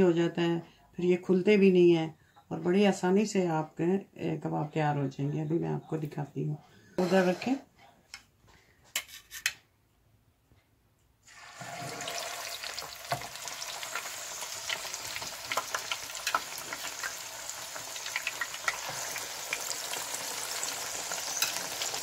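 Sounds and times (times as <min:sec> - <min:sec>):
meat patty sizzling in oil: 0:11.2 - 0:22.0.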